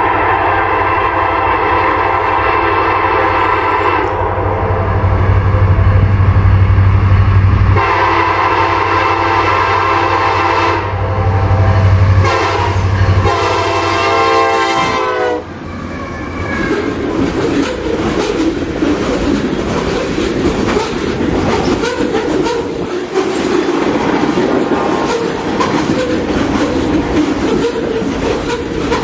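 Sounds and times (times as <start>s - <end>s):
locomotive air horn: 0.0s - 5.2s, 7.8s - 16.9s
train cars rumbling past: 0.0s - 29.0s.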